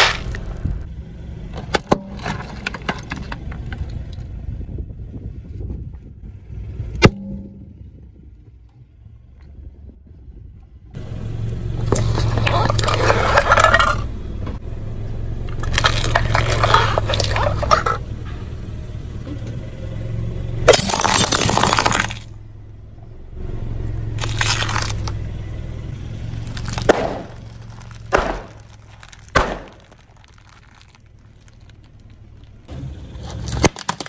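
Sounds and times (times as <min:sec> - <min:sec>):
tyre crushing brittle objects: 0:00.0 - 0:00.6, 0:11.8 - 0:14.0, 0:15.5 - 0:18.0, 0:20.7 - 0:22.3, 0:24.2 - 0:25.2, 0:26.2 - 0:34.0
car engine idling: 0:06.2 - 0:34.0.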